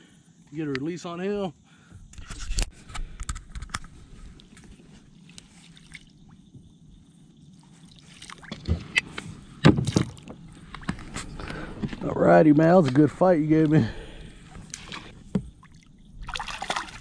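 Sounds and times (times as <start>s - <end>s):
water sloshing and splashing: 4.0s - 6.7s, 7.5s - 9.0s, 9.6s - 12.1s, 13.6s - 17.0s.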